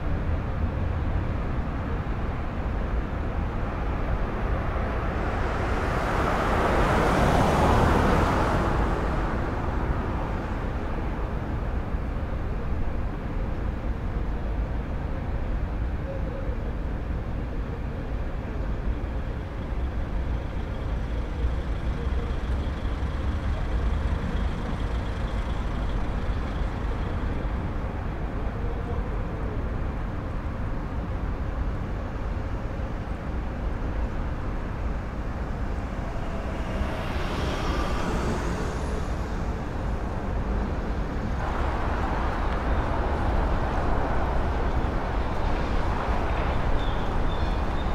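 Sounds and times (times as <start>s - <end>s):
low rumble of traffic: 0.0s - 47.9s
cars passing close by: 3.4s - 12.2s, 19.0s - 28.4s, 31.0s - 47.9s.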